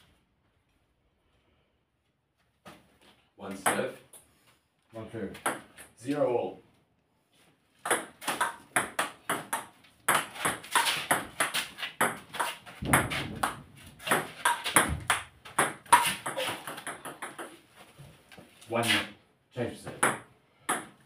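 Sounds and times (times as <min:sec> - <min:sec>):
dull thumps: 0:12.0 - 0:17.4.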